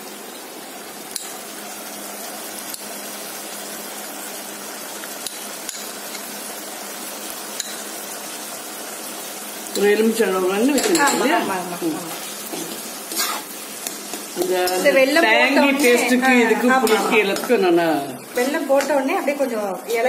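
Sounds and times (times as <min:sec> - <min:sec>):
mixture sizzling in a pan: 0:00.0 - 0:20.0
metal utensils clinking on pan: 0:09.7 - 0:19.2.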